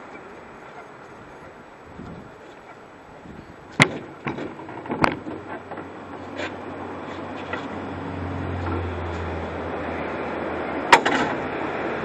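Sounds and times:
knocks against canoe hull: 3.8s - 5.5s.

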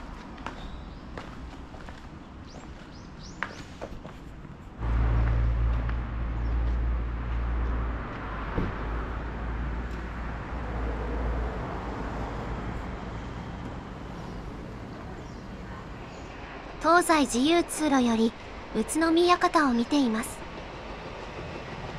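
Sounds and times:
road traffic hum: 0.0s - 16.8s.

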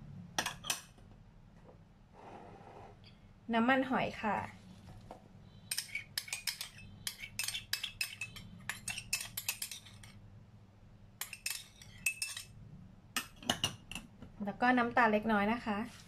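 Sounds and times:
metal spoon scraping ceramic bowl: 5.6s - 10.2s, 11.2s - 12.6s.

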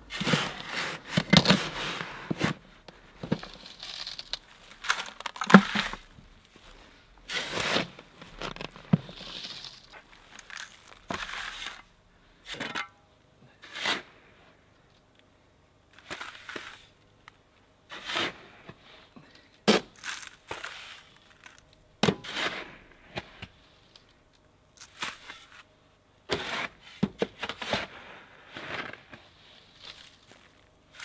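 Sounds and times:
shovel scraping into sand: 0.1s - 2.6s, 7.3s - 8.0s, 9.1s - 11.8s, 13.6s - 14.2s, 17.9s - 18.6s, 20.0s - 21.2s, 22.1s - 23.4s, 26.3s - 31.0s.

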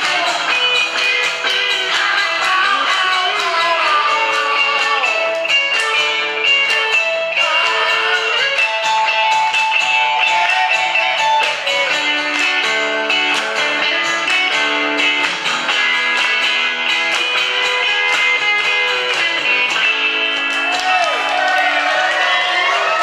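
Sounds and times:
acoustic guitar strumming: 0.0s - 23.0s
electric guitar: 0.0s - 23.0s.

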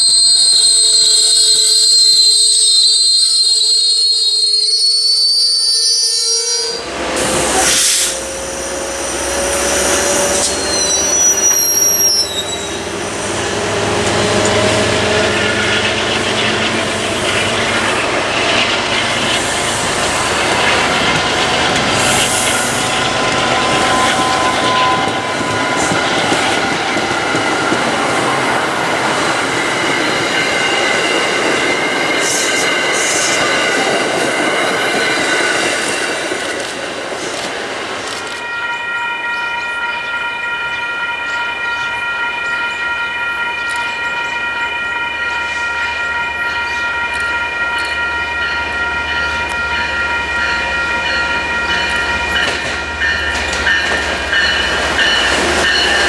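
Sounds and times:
train wheels rumbling on rails: 6.8s - 56.0s
wheel squeal: 9.5s - 12.9s.

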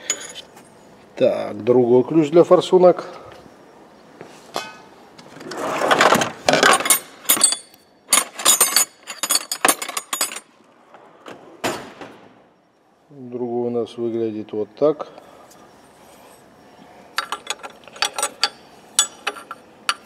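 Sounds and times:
metal tools clinking in drawer: 6.4s - 10.5s, 17.2s - 20.0s.

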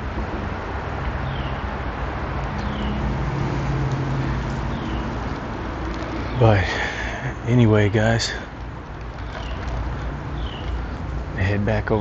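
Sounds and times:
engine hum: 0.0s - 12.0s
road traffic rumble: 0.0s - 12.0s.

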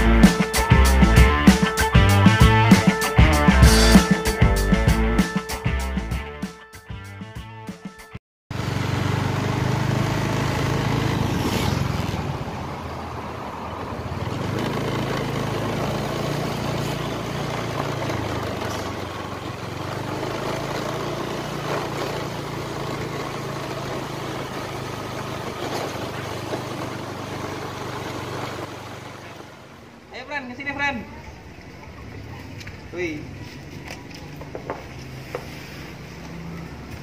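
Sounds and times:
small motorbike engine running: 8.5s - 30.0s
wind and road noise: 8.5s - 37.0s.

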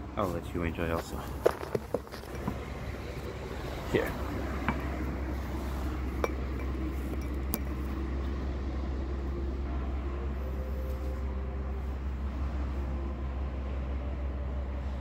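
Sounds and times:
low outdoor rumble: 0.0s - 15.0s
sharp clicks and clinks: 4.6s - 5.1s, 6.1s - 7.9s.

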